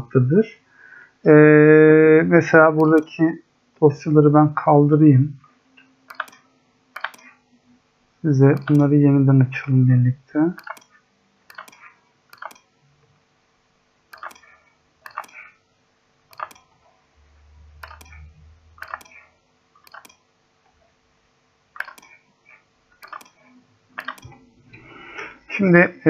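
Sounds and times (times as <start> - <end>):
computer mouse clicks: 2.8 - 3.1, 6.1 - 7.4, 8.5 - 8.9, 10.6 - 12.7, 14.1 - 15.5, 16.3 - 16.7, 17.8 - 20.2, 21.8 - 22.2, 23.0 - 24.4.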